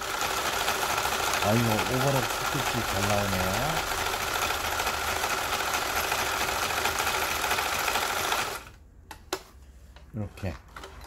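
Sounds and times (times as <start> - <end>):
sewing machine running: 0.0 - 8.8.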